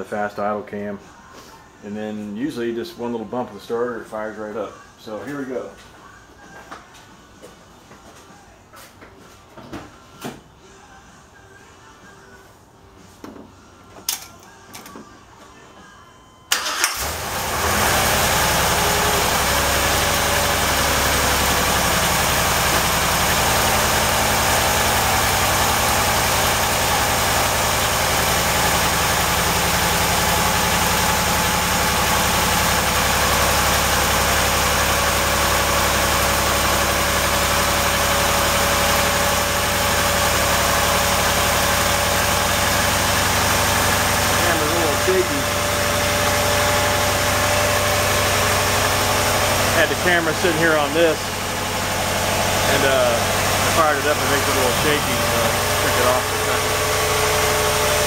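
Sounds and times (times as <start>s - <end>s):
car engine starting and fast idling: 16.5s - 58.0s.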